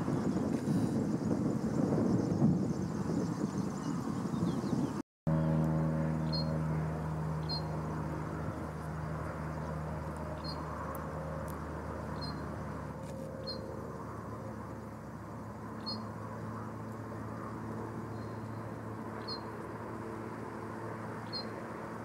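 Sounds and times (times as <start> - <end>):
open-air background noise: 0.0 - 22.0
low engine drone: 5.3 - 22.0
high bird chirp: 6.2 - 6.6, 7.4 - 7.7, 10.4 - 10.6, 12.2 - 12.5, 15.8 - 16.1, 19.2 - 19.5.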